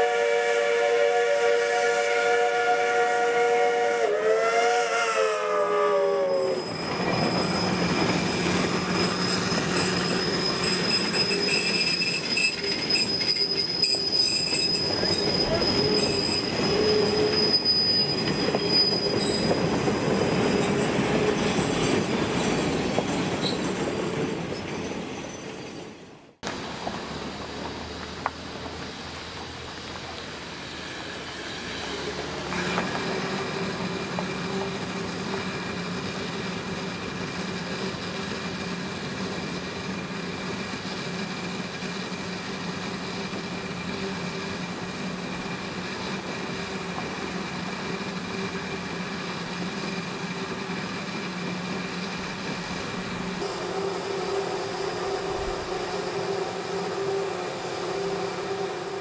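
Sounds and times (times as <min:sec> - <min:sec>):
steam hissing: 0:26.6 - 0:59.0.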